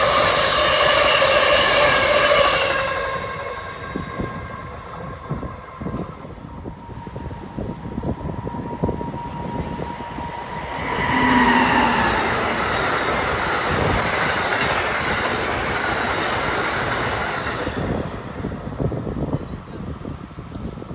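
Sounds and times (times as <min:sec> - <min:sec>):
train wheels on rails rushing: 0:00.0 - 0:20.9
locomotive high whine: 0:04.8 - 0:15.6.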